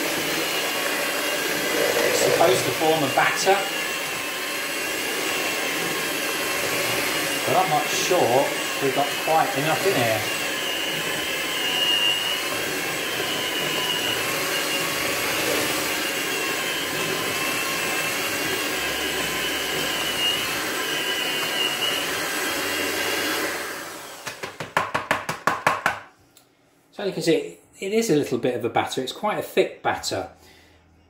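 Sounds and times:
electric hand mixer running: 0.0s - 25.6s.

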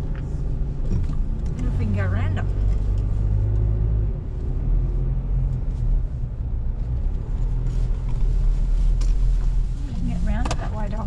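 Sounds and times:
engine and tyre rumble: 0.0s - 11.0s.

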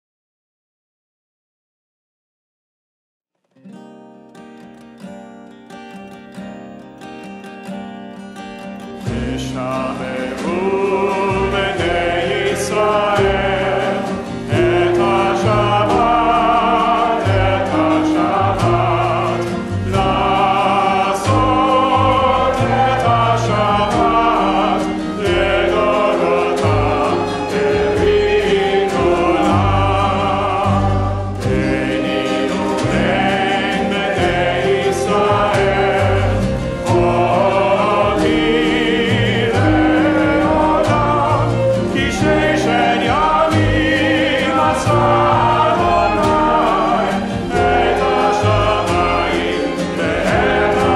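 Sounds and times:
acoustic guitar: 3.4s - 50.9s
group singing prayer melody: 9.1s - 50.9s
upright bass: 9.1s - 50.9s
hand drum: 10.4s - 50.9s.

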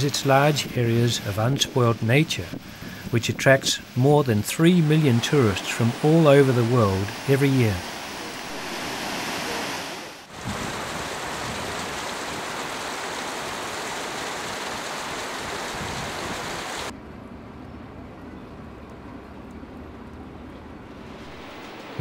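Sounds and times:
waterfall rushing: 0.0s - 16.9s, 21.1s - 22.0s.

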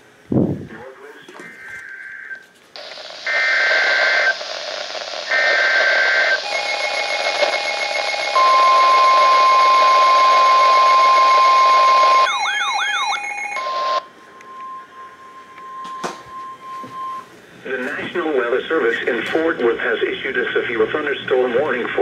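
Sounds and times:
radio static hiss: 0.6s - 12.2s, 17.6s - 22.0s
steady warning alert tone: 6.5s - 17.3s
warbling siren-like tone: 6.5s - 17.3s.

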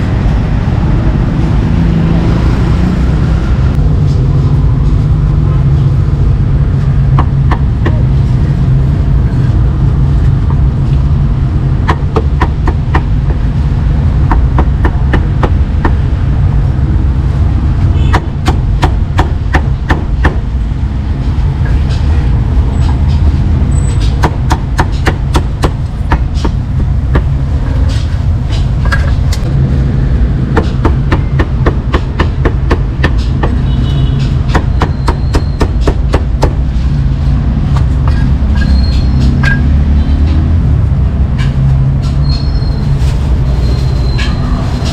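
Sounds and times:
low rumble: 25.5s - 33.0s.

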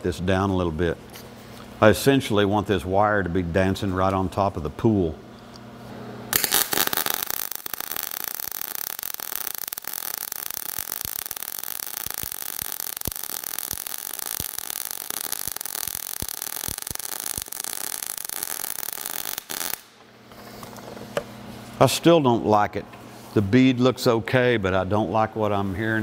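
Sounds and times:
welding arc crackling and popping: 6.3s - 20.0s.

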